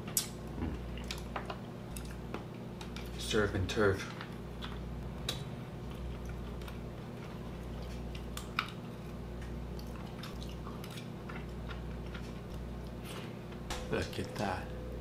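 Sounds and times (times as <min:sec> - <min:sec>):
chewing and sucking: 0:09.7 - 0:13.3.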